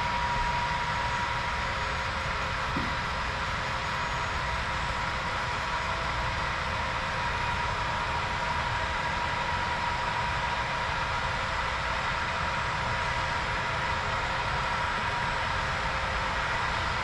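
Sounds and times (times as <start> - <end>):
steady whine: 0.0 - 10.3.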